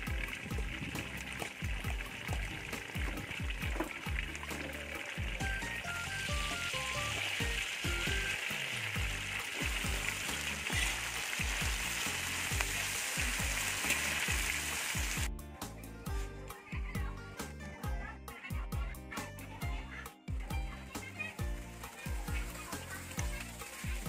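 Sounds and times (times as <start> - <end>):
food sizzling in hot oil: 0.0 - 15.3, 20.8 - 24.0.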